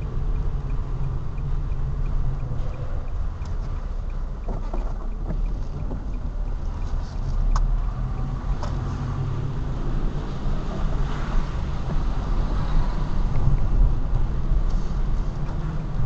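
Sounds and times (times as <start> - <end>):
car engine and road rumble: 0.0 - 16.0
tyre noise on wet road: 3.4 - 16.0.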